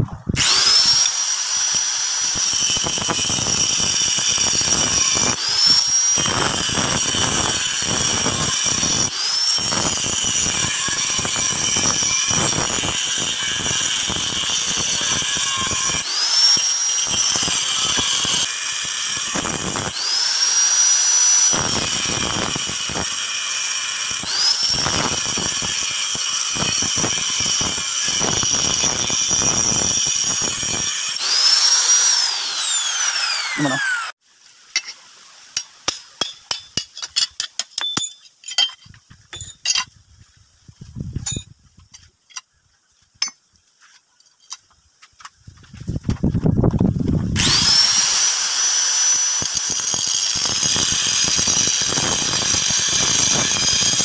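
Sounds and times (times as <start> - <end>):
angle grinder cutting metal: 0.4 - 34.2, 47.4 - 54.0.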